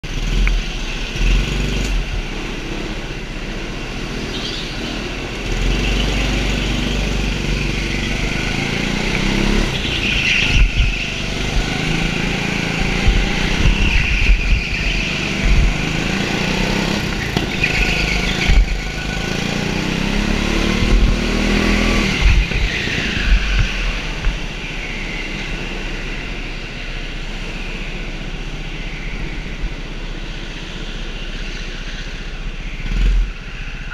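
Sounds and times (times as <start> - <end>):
go-kart engine revving: 0.0 - 33.9
wind buffeting on microphone: 9.3 - 24.6.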